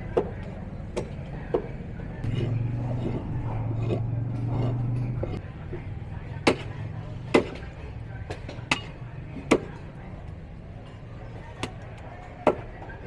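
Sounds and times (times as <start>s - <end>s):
low hum: 2.2s - 5.4s.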